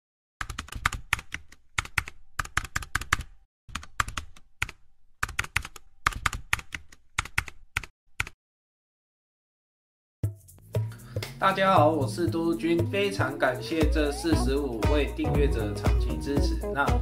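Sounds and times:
keyboard typing: 0.4 - 8.4.

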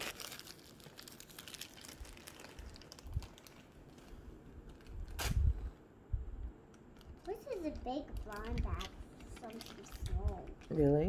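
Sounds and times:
plastic baggie crinkling: 0.0 - 5.4, 6.9 - 11.0.

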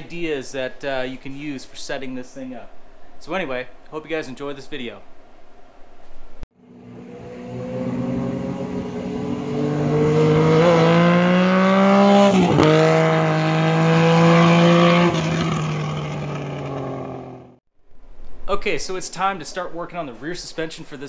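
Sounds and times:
motor engine revving: 6.6 - 17.6.

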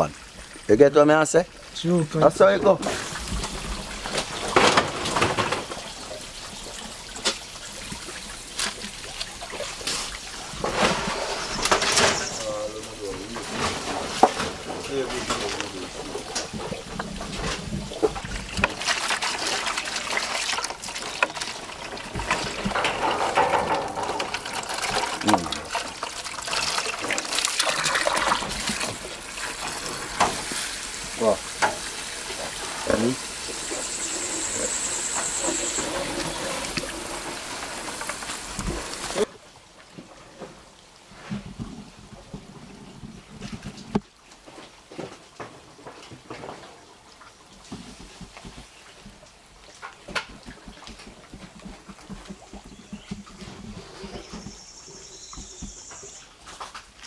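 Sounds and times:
water splashing and trickling: 0.0 - 57.0.

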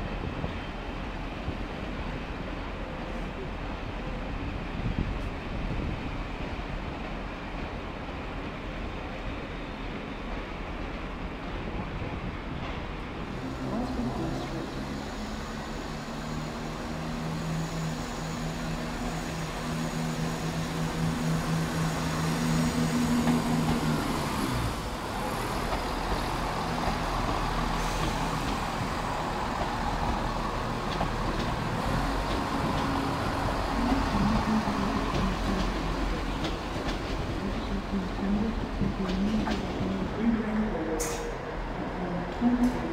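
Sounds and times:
train wheel and rail noise: 0.0 - 42.9
diesel train engine droning: 13.1 - 42.9.

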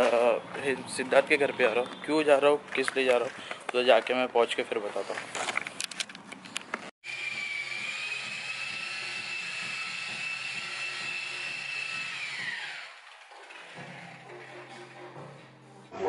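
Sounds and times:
electric polisher whining: 7.1 - 14.5.

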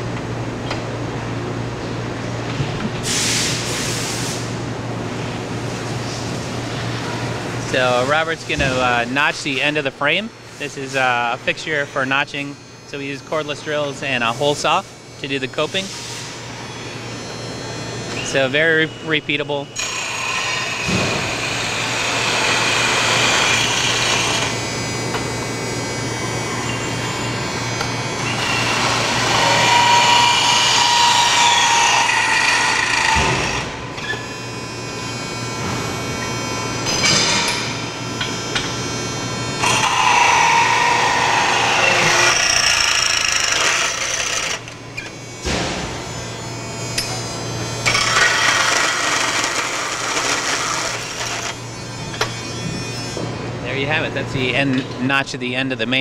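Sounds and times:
drill whine: 16.7 - 45.4, 46.2 - 53.2
hole saw cutting metal tube: 19.8 - 24.5, 28.2 - 33.7, 39.6 - 45.2, 47.8 - 51.6.

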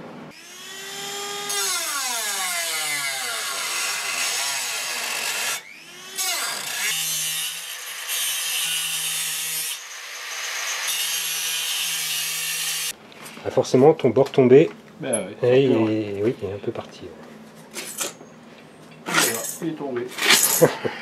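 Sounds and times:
angle grinder grinding steel: 0.4 - 12.9
hand grinder whining on steel: 0.4 - 12.9.

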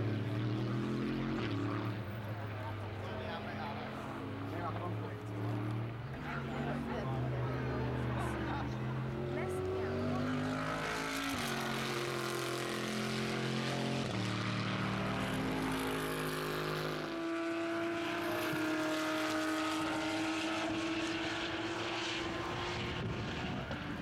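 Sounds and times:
race car engine accelerating: 0.0 - 24.0.

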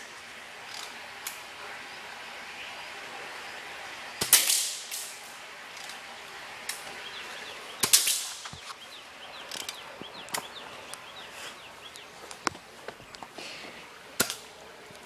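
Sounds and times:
bb gun shots hitting metal pipe: 4.2 - 5.1, 7.8 - 8.4
small clicks: 4.2 - 6.0, 9.4 - 11.1.

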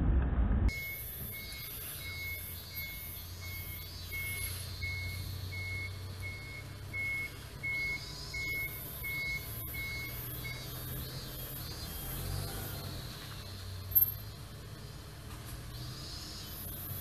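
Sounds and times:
short high electronic beeps: 0.7 - 10.8.

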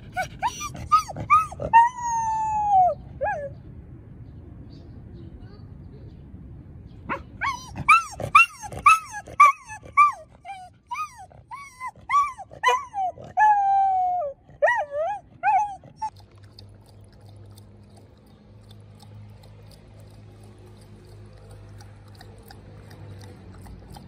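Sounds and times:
dog howling and whining: 0.0 - 3.6, 7.4 - 16.1.

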